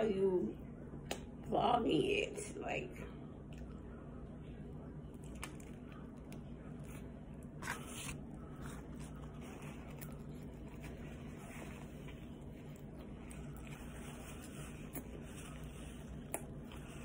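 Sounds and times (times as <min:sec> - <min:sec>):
low steady hum: 0:00.0 - 0:17.0
person chewing: 0:05.1 - 0:17.0.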